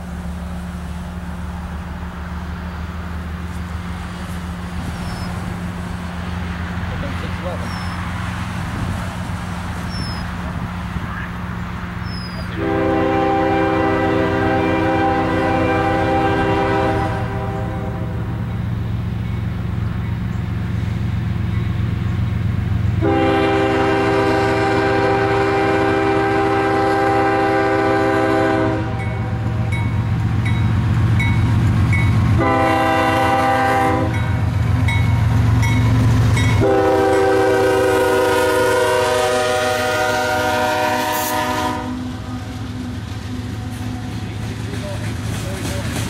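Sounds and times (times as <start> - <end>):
train rumbling: 0.0 - 46.0
locomotive air horn blasts: 12.4 - 18.3, 23.0 - 29.6, 32.3 - 34.4, 36.5 - 42.5.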